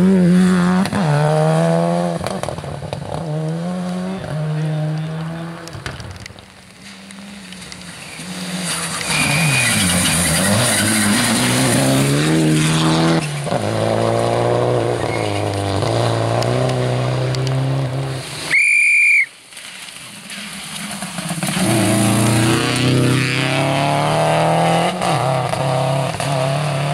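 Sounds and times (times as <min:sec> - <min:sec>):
rally car engine revving: 0:00.0 - 0:18.5, 0:20.5 - 0:26.9
tyres hissing on wet gravel: 0:05.7 - 0:13.5, 0:16.8 - 0:23.2
shrill whistle-like tone: 0:18.5 - 0:19.4.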